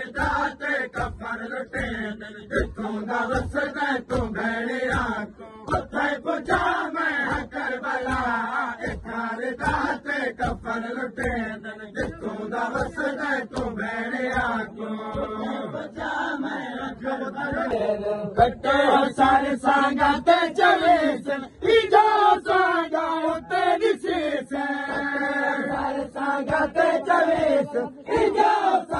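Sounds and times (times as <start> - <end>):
men chanting in unison: 0.0 - 28.9
hands slapping chests: 0.1 - 15.4.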